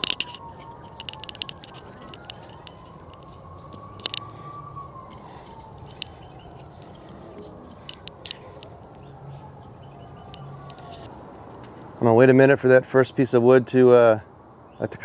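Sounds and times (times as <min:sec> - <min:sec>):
wood chunks clinking on charcoal: 0:00.0 - 0:09.1.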